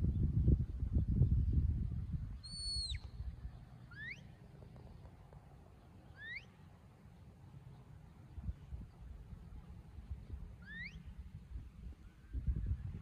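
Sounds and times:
wind rumbling on microphone: 0:00.0 - 0:05.6, 0:08.2 - 0:13.0
shepherd's whistle: 0:02.4 - 0:03.2, 0:10.6 - 0:11.0.

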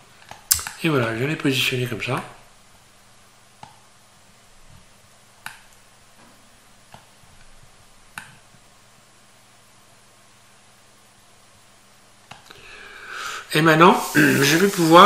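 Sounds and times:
faint steady hum: 0:00.0 - 0:15.0
computer mouse clicks: 0:00.3 - 0:00.8, 0:05.4 - 0:05.8, 0:08.2 - 0:08.4.

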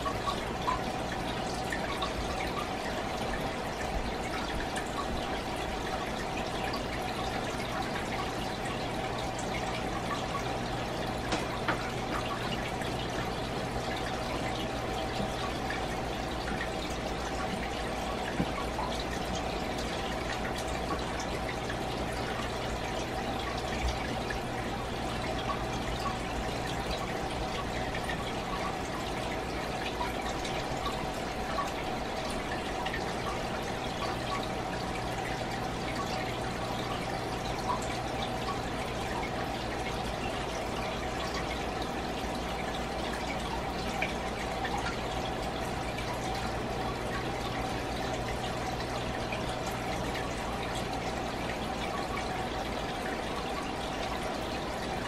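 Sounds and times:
aquarium water trickling: 0:00.0 - 0:55.0
low steady hum: 0:00.0 - 0:55.0.

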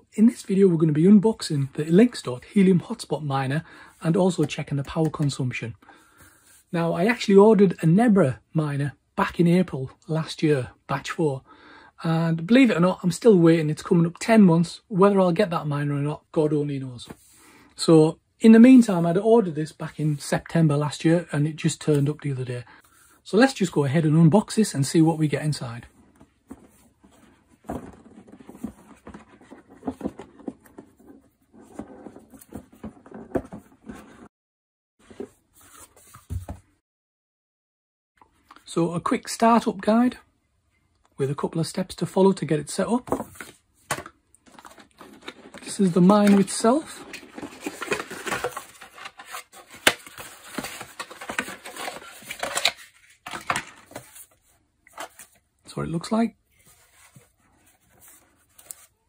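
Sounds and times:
packaging rustling and scraping: 0:26.1 - 0:34.3, 0:44.4 - 0:55.4, 0:56.5 - 0:59.0
cardboard box being handled: 0:26.3 - 0:34.3, 0:46.2 - 0:53.1.

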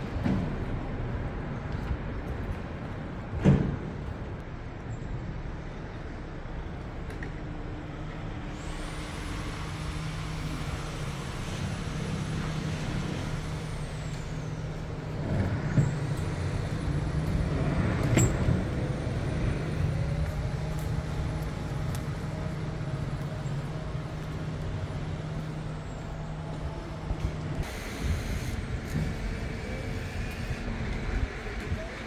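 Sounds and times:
diesel engine humming: 0:07.5 - 0:32.0.

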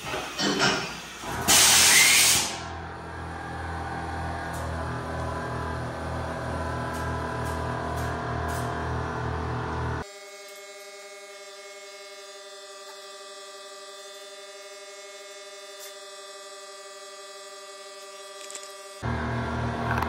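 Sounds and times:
electrical hum: 0:02.5 - 0:10.0, 0:18.0 - 0:20.0.

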